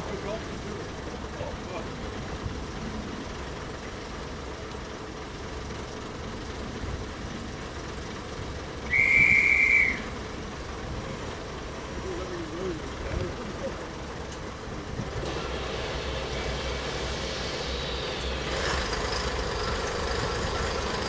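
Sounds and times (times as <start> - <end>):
diesel train engines idling: 0.0 - 21.0
whistle blown: 8.8 - 10.2.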